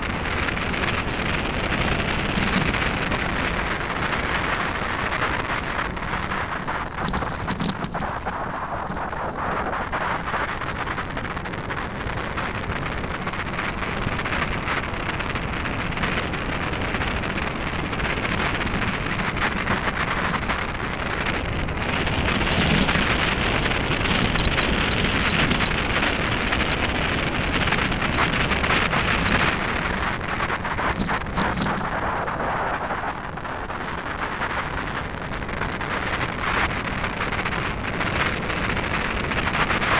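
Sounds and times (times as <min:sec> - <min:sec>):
wind rushing over microphone: 0:00.0 - 0:39.9
bike tyres crunching on gravel: 0:15.7 - 0:32.8
sharp clicks: 0:22.0 - 0:32.6.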